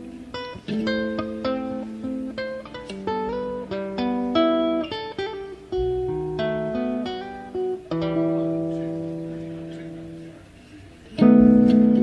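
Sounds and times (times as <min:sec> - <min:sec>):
plucked ukulele and guitar notes: 0:00.0 - 0:10.3, 0:11.1 - 0:12.0
strummed chord: 0:02.8 - 0:10.2.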